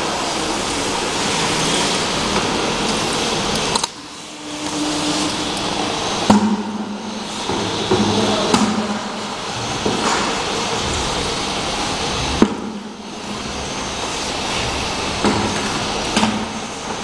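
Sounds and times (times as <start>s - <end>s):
rushing machine noise: 0.0s - 17.0s
steady hum: 0.0s - 17.0s.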